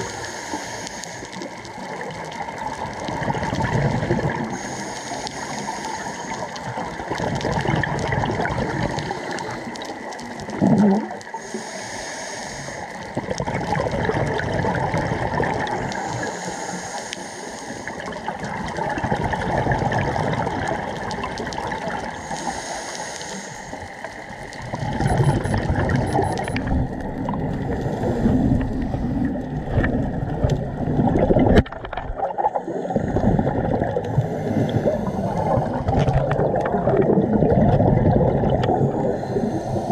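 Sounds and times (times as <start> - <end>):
regulator hissing inhalation: 0.0 - 1.4, 4.5 - 6.5, 11.3 - 13.0, 16.0 - 18.0, 22.2 - 23.9, 38.9 - 39.9
bubbling exhalations: 2.9 - 4.6, 6.7 - 9.8, 10.4 - 11.4, 13.1 - 16.0, 18.0 - 22.2, 24.5 - 39.9.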